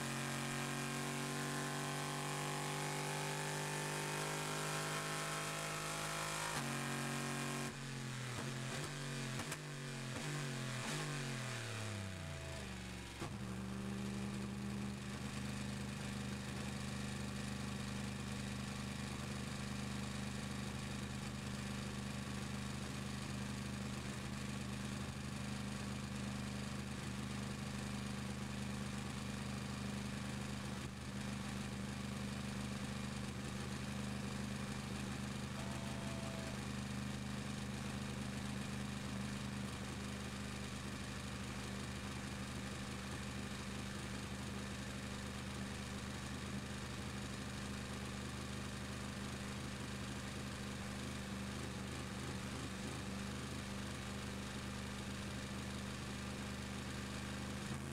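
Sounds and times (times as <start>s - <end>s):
race car engine: 0.0s - 15.4s.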